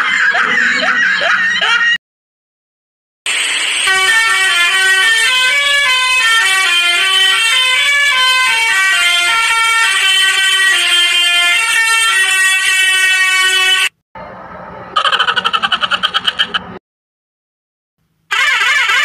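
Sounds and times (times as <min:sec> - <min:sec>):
truck musical horn tune: 0:03.8 - 0:14.0, 0:18.3 - 0:19.0.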